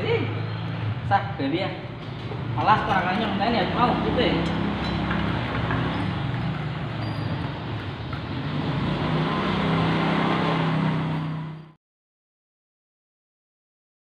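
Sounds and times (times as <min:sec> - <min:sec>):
outdoor background noise: 0:00.0 - 0:11.8
vehicle engine running: 0:01.9 - 0:11.7.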